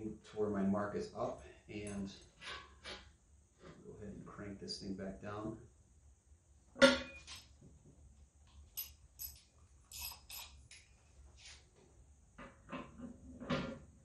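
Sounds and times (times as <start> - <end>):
faint clicks and clinks: 8.5 - 10.9.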